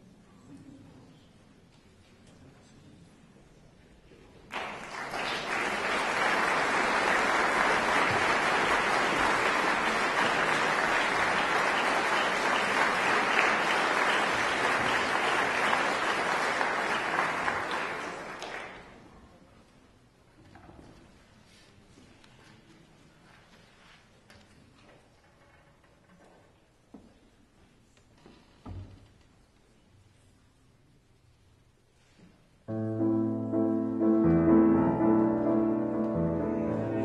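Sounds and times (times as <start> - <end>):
audience applauding: 4.5 - 19.0.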